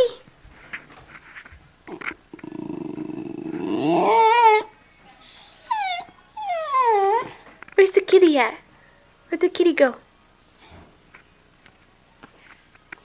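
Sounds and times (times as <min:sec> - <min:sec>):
dog whining and howling: 0:02.4 - 0:07.5.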